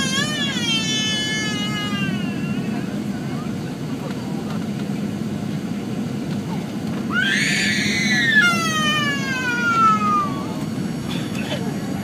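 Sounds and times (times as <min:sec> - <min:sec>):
small child wailing: 0:00.0 - 0:02.9, 0:07.1 - 0:10.6
airliner cabin drone: 0:00.0 - 0:12.0.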